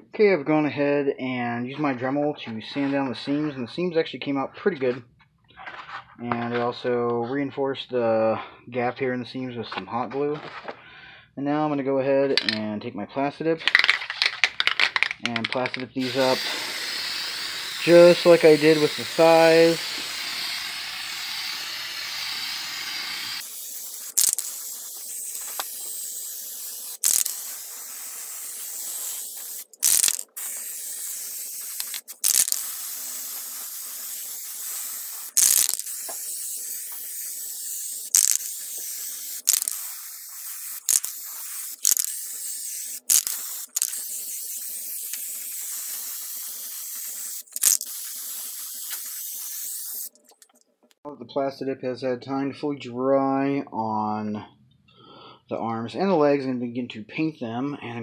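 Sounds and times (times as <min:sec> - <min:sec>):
spray can clicks: 0:13.7 - 0:50.5
aerosol can spraying hiss: 0:16.0 - 0:50.1.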